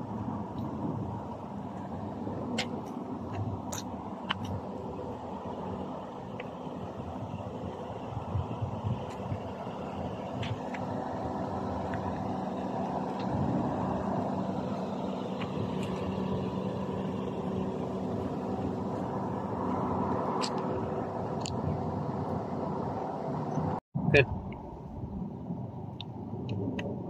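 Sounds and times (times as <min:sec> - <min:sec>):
engine-like hum: 0:00.0 - 0:27.0.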